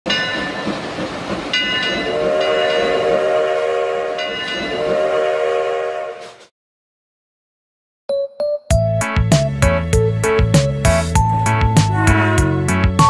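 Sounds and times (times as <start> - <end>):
train rumble: 0.1 - 6.5, 10.2 - 13.0
locomotive air horn blasts: 2.1 - 4.2, 4.8 - 6.4, 11.9 - 13.0.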